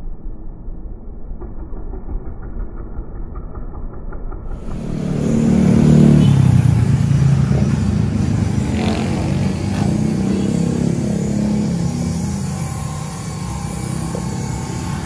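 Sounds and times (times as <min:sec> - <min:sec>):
vehicle engine passing: 0:04.5 - 0:15.0.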